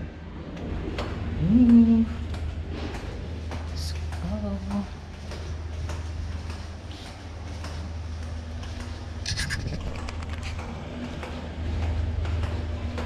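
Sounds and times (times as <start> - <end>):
steady low hum: 0.0 - 13.0
microphone handling rubbing: 9.2 - 10.6.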